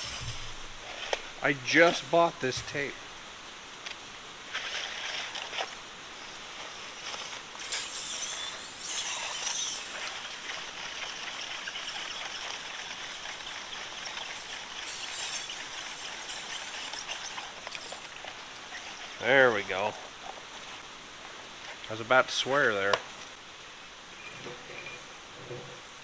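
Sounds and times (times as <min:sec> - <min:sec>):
steady hiss: 0:00.0 - 0:26.0
tape rustling and crackling: 0:03.8 - 0:21.9.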